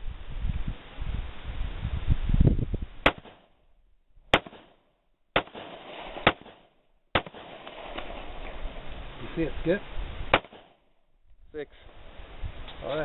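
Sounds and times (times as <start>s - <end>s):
pistol shots with echo: 3.0s - 3.5s, 4.3s - 4.8s, 5.4s - 8.2s, 10.3s - 10.8s.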